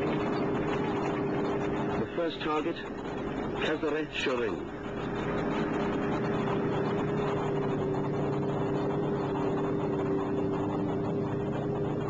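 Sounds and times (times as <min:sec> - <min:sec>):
engine drone with humming tones: 0:00.0 - 0:12.0.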